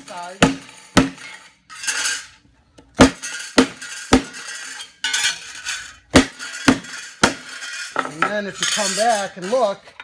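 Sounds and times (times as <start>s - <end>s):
hammer striking metal plate: 0.1s - 2.0s, 3.0s - 9.0s.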